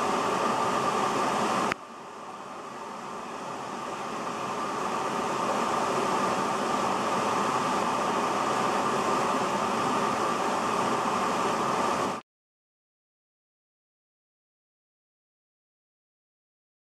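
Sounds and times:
water rushing through rapids: 0:00.0 - 0:12.2.

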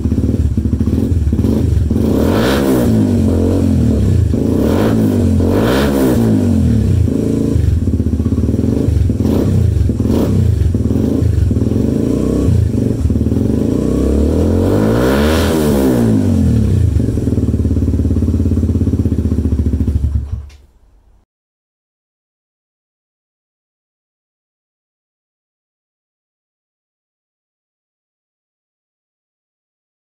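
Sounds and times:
motorcycle engine idling and revving: 0:00.0 - 0:20.6.

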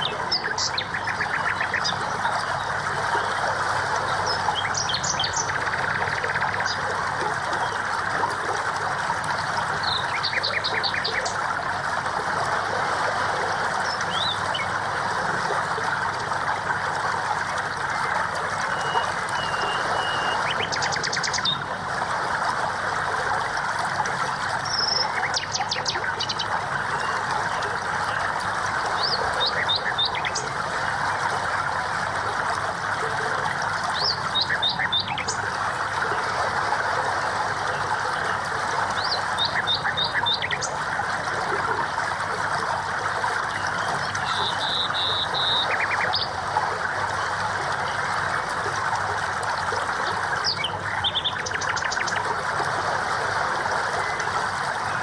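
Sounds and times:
birds chirping: 0:00.0 - 0:03.4, 0:04.0 - 0:07.9, 0:09.8 - 0:11.4, 0:18.6 - 0:21.7, 0:24.6 - 0:30.6, 0:33.9 - 0:35.5, 0:38.1 - 0:40.8, 0:43.5 - 0:46.4, 0:50.3 - 0:52.3
running water: 0:00.0 - 0:55.0.

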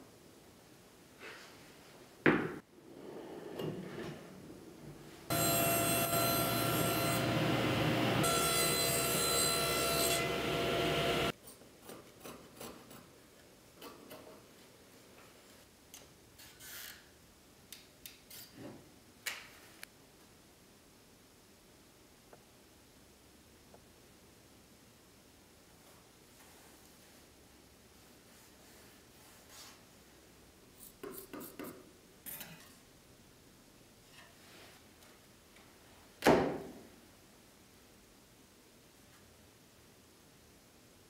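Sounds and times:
table saw cutting plywood: 0:05.3 - 0:11.3.

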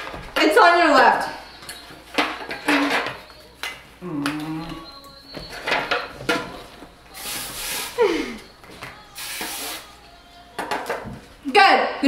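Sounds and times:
aerosol can hissing: 0:07.1 - 0:08.1, 0:09.1 - 0:10.0.

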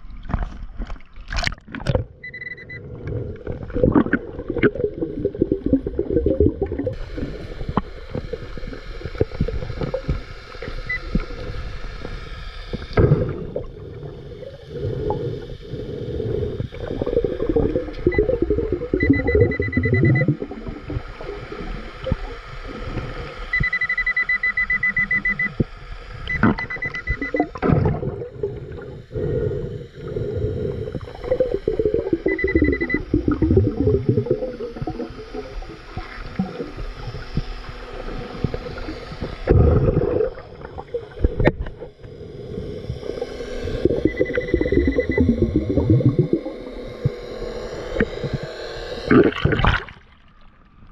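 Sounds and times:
underwater bubbling and gurgling: 0:00.0 - 0:50.9
metal detector beeping: 0:02.2 - 0:03.0, 0:10.1 - 0:11.5, 0:17.3 - 0:20.4, 0:23.5 - 0:25.6, 0:26.2 - 0:27.8, 0:30.5 - 0:37.2, 0:43.1 - 0:47.1.

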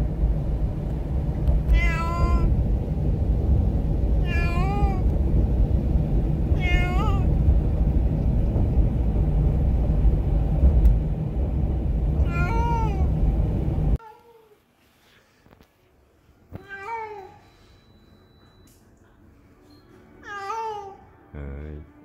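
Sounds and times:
car rumble: 0:00.0 - 0:14.0
cat meowing: 0:01.7 - 0:02.5, 0:04.2 - 0:05.0, 0:06.6 - 0:07.3, 0:12.2 - 0:13.1.

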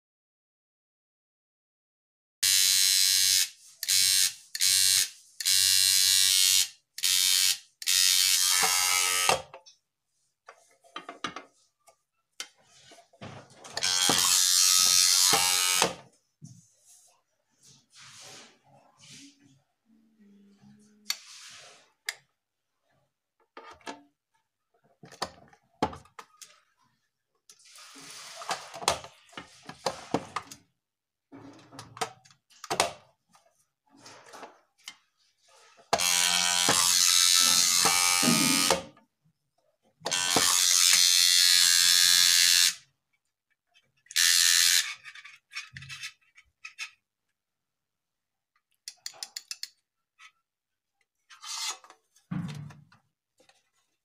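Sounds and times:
alarm buzzer: 0:02.4 - 0:09.3, 0:36.1 - 0:38.9.

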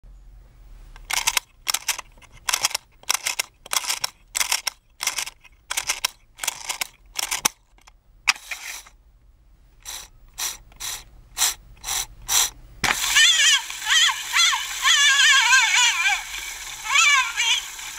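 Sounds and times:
wind-up key ratcheting clicks: 0:01.0 - 0:07.9, 0:09.8 - 0:13.7.

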